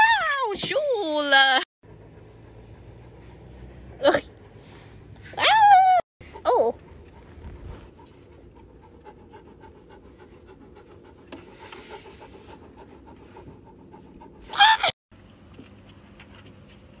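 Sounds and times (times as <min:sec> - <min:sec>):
insects chirping: 0:01.9 - 0:04.2, 0:07.0 - 0:14.4, 0:15.2 - 0:17.0.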